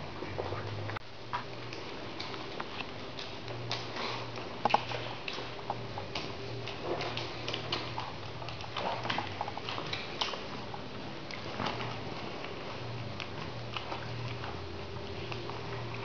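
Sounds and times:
steady low hum: 0:00.0 - 0:16.0
puppy mouthing clicks and smacks: 0:00.6 - 0:12.0.

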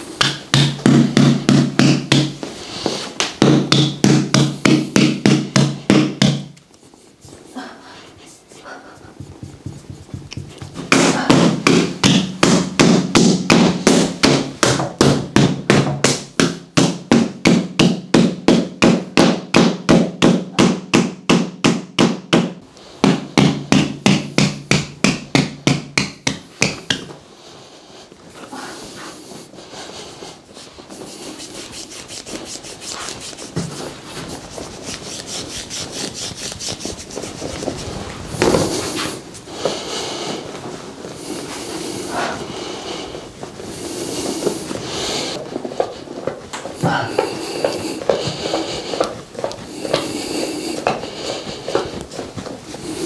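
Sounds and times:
massage tool tapping rapidly: 0:00.0 - 0:02.4, 0:03.2 - 0:06.7, 0:09.1 - 0:27.2, 0:31.0 - 0:37.8
hands rubbing over fabric: 0:06.6 - 0:12.2, 0:26.4 - 0:53.0.

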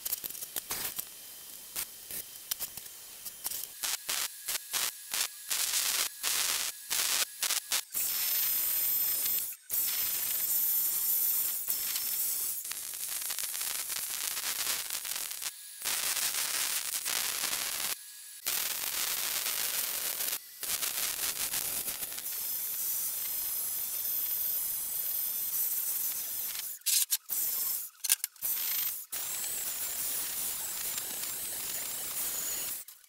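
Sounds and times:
welding arc crackling: 0:00.0 - 0:33.0.

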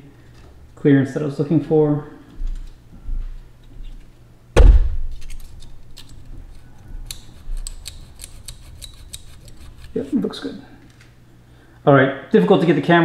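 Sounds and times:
heavy knock: 0:04.6 - 0:05.1.

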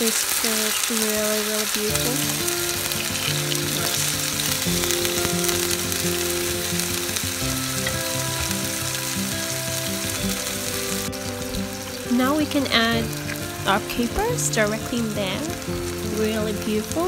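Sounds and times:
background music of held notes: 0:00.0 - 0:17.0
fish sizzling in a pan: 0:00.0 - 0:17.0.

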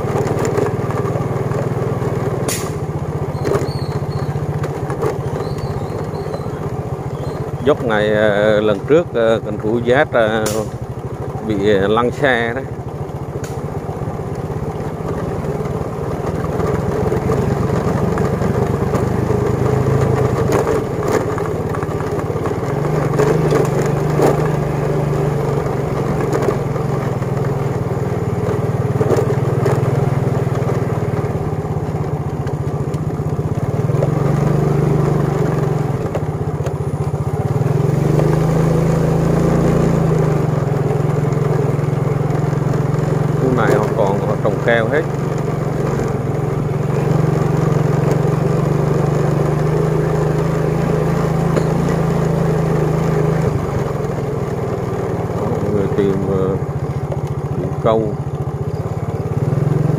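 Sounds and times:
motorbike engine revving: 0:00.0 - 0:59.9.

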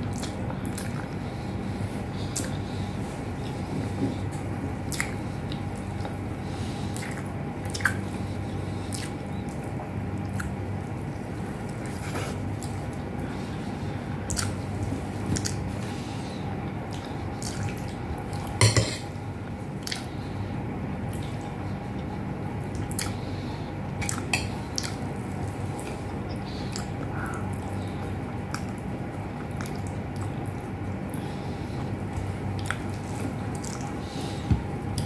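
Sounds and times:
wet mouth smacks and chewing: 0:04.9 - 0:06.2, 0:07.0 - 0:08.0, 0:22.7 - 0:23.2, 0:24.0 - 0:25.0, 0:29.4 - 0:30.4.

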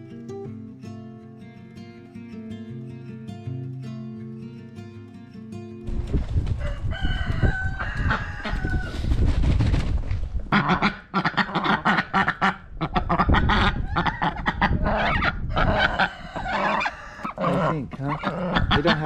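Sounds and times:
ducks quacking: 0:10.4 - 0:19.0.

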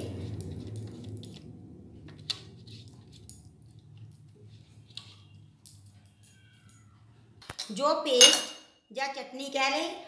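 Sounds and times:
faint low hum: 0:00.0 - 0:07.5.

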